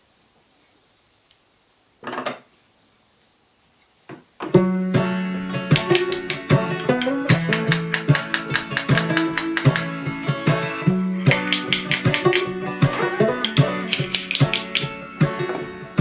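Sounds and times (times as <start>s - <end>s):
plucked-string music: 4.5s - 16.0s
sharp percussive strikes: 5.7s - 10.0s, 11.3s - 15.0s.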